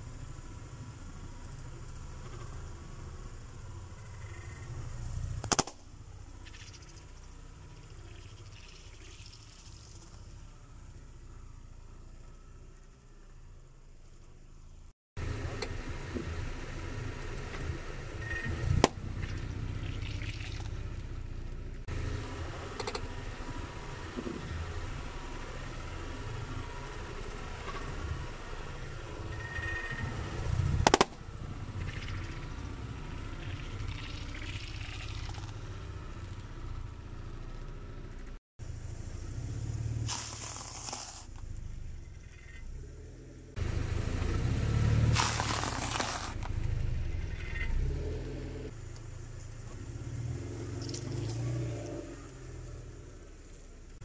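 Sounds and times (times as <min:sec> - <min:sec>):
car engine and tyre rumble: 0:00.0 - 0:54.0
objects cracking under tyre: 0:30.8 - 0:31.2, 0:40.0 - 0:41.6, 0:45.0 - 0:47.6.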